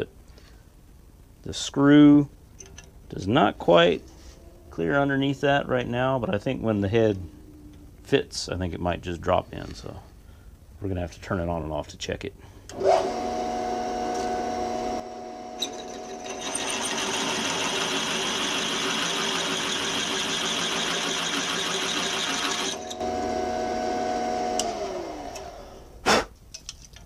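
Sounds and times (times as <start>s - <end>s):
drill motor humming: 12.7s - 26.0s
drill bit cutting metal: 15.4s - 23.2s.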